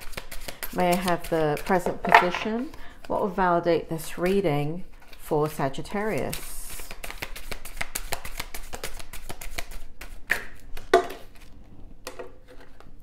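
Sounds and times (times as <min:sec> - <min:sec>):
cards being shuffled: 0:00.0 - 0:03.2, 0:04.9 - 0:05.2, 0:06.1 - 0:11.6.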